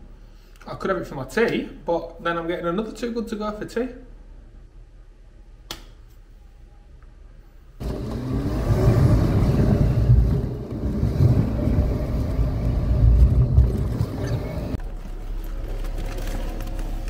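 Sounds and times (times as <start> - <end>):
car engine and road rumble: 7.8 - 17.0.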